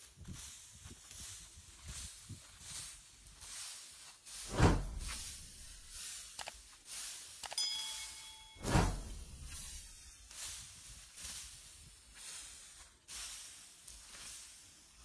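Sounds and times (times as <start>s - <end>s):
dry straw rustling and swishing: 0.0s - 7.5s, 8.2s - 15.0s
short chime: 7.5s - 10.0s.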